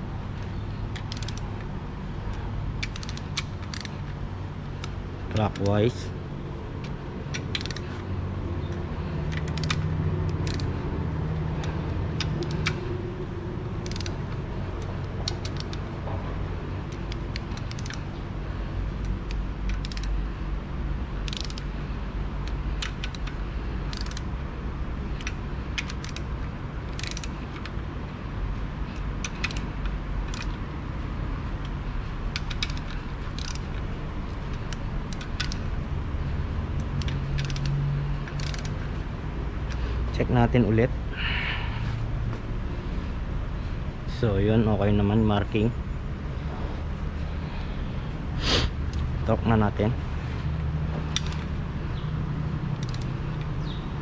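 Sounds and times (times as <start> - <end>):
steady low hum: 0.0 - 54.0
ratchet wrench clicking: 0.4 - 1.7, 2.3 - 6.0, 6.8 - 18.3, 18.9 - 20.3, 21.2 - 24.4, 25.1 - 27.8, 28.9 - 30.8, 31.6 - 35.8, 36.7 - 39.0, 51.0 - 53.9.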